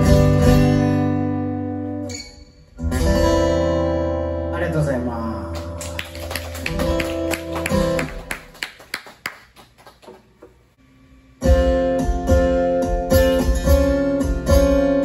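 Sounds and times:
acoustic guitar strumming: 0.0 - 4.6, 6.7 - 8.5, 11.3 - 15.0.

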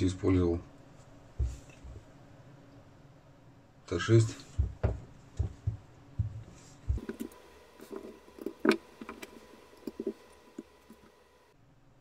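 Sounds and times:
dull bumps: 4.4 - 10.8.

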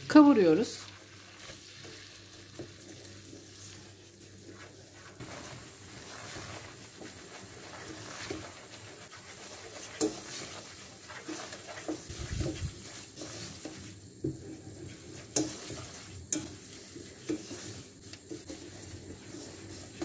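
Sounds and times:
semolina sizzling in butter: 0.0 - 20.0.

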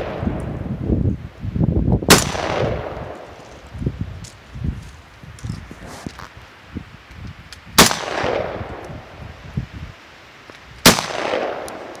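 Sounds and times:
rifle shots with echo: 2.1 - 3.4, 7.8 - 8.8, 10.8 - 12.0.

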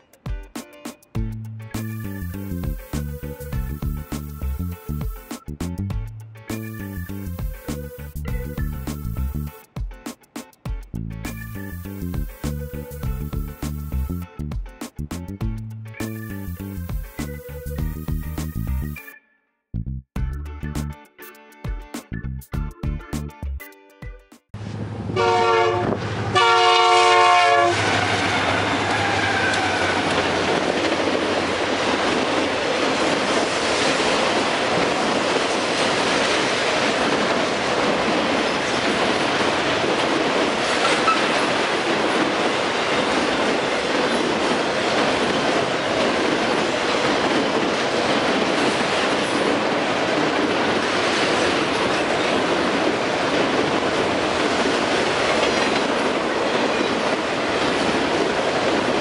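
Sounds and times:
train wheels rumbling on rails: 24.6 - 59.0
train horn chord: 25.1 - 30.1.

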